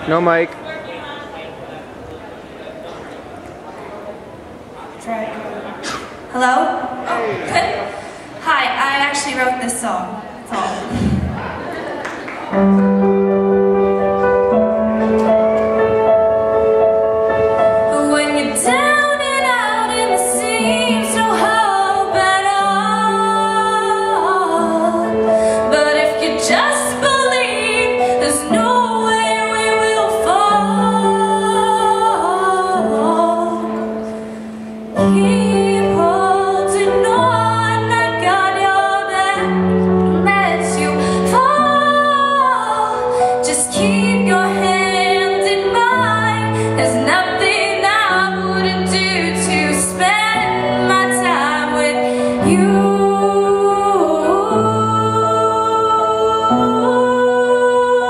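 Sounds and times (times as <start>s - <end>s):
instrumental accompaniment: 12.5s - 58.0s
woman singing slow song: 17.8s - 34.2s, 35.0s - 58.0s.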